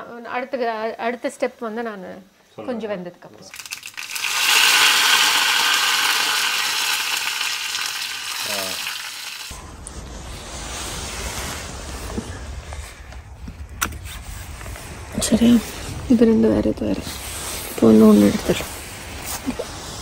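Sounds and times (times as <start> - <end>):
hissing sizzle sound effect: 3.5 - 12.7
wind rumble on microphone: 9.5 - 20.0.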